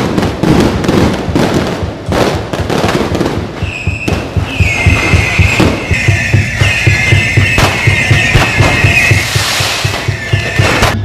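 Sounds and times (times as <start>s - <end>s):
firecrackers crackling: 0.0s - 11.0s
high held tone: 3.6s - 11.0s.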